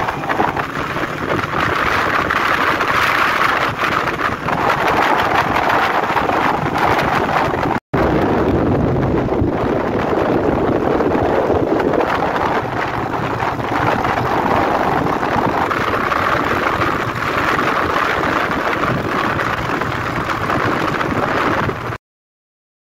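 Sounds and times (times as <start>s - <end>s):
motorcycle engine running: 0.0s - 21.9s
wind rushing over microphone: 0.0s - 22.0s.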